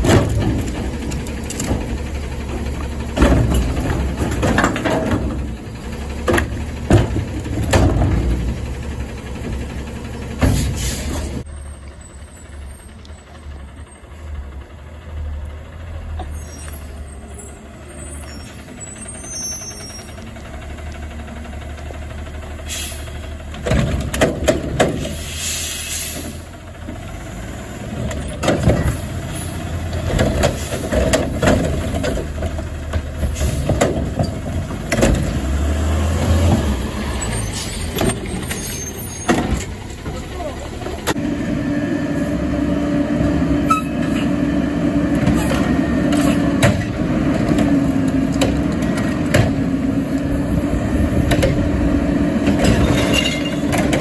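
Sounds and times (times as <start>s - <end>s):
loud metal clanks and bangs: 0.0s - 11.4s, 52.4s - 54.0s
diesel engine running: 0.0s - 54.0s
air brakes hissing: 10.5s - 11.4s, 22.6s - 23.4s, 24.9s - 26.6s, 33.2s - 33.8s, 37.1s - 39.4s.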